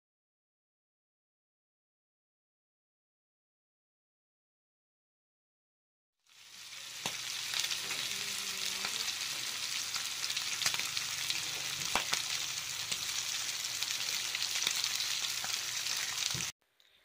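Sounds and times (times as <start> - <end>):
bacon sizzling in a pan: 6.2 - 16.6.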